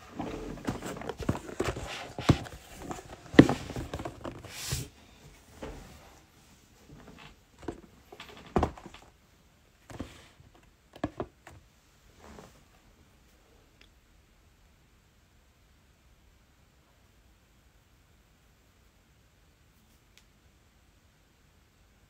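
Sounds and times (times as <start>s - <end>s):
cardboard boxes knocking on table: 0.6s - 4.5s.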